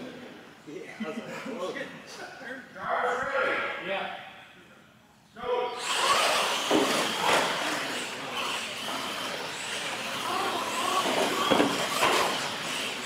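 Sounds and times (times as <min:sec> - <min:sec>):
toy truck motors running: 0:05.8 - 0:13.0.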